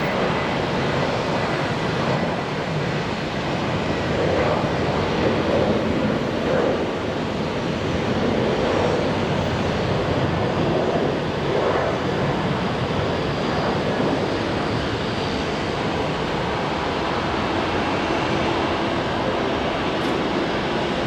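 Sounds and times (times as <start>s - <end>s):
jet engines roaring: 0.0s - 21.0s.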